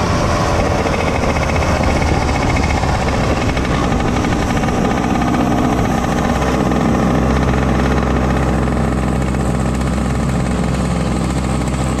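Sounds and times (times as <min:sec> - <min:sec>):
kart engine at low revs: 0:00.0 - 0:12.0.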